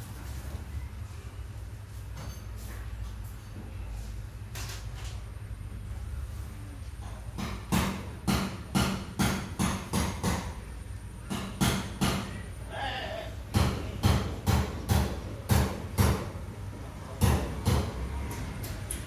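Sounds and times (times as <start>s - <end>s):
sharp knocks: 7.3s - 10.6s.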